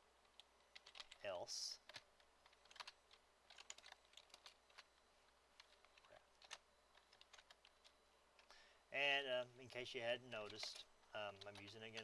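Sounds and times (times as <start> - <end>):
typing on keyboard: 0.2 - 4.9, 5.6 - 8.0, 10.3 - 12.0.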